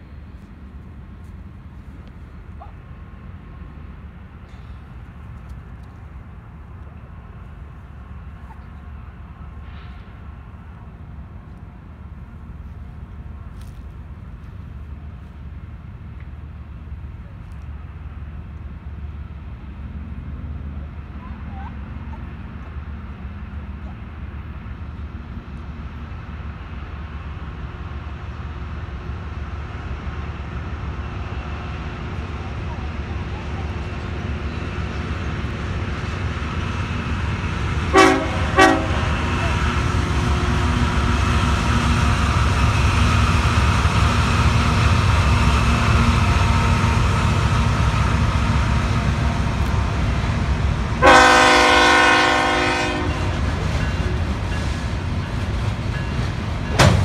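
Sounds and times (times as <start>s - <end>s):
distant locomotives rumbling: 0.0s - 57.0s
locomotive air horn: 37.9s - 40.7s, 51.0s - 53.5s.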